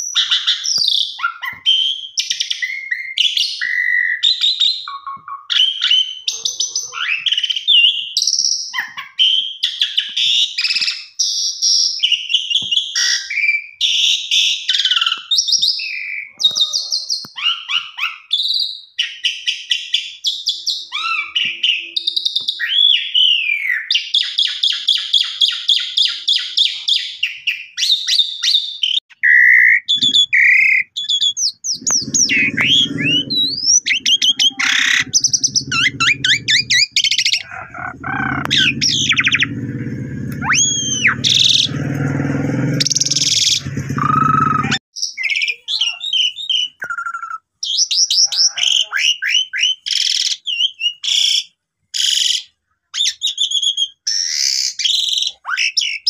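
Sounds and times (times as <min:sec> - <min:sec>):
starling singing: 0:29.8 - 0:46.8
low rumbling noise: 0:31.7 - 0:44.8.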